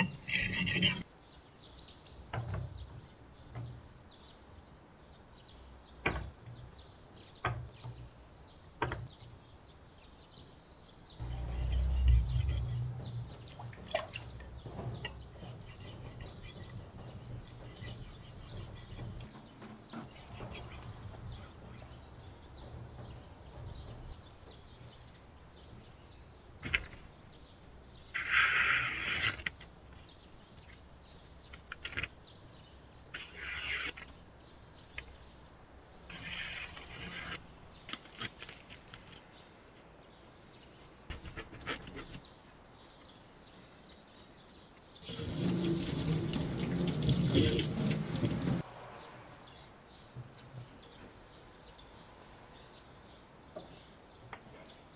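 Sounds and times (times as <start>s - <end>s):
newspaper rustling and crackling: 37.9s - 39.3s.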